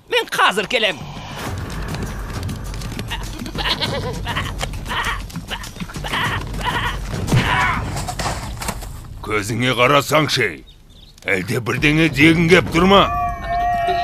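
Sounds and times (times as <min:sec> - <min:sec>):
background music: 0:00.9 - 0:14.0
cartoon goat bleating: 0:03.1 - 0:07.8.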